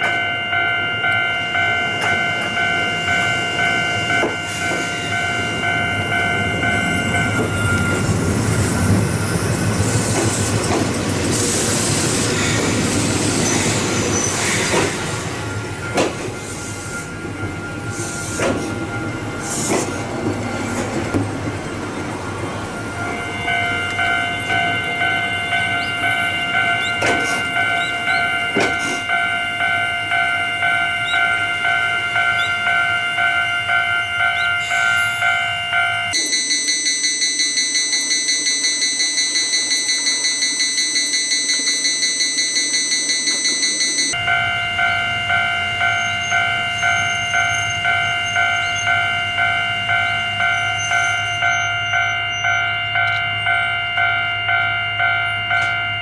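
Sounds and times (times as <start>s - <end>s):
level-crossing warning bell: 0.0s - 56.0s
higher-pitched fast bell: 22.8s - 56.0s.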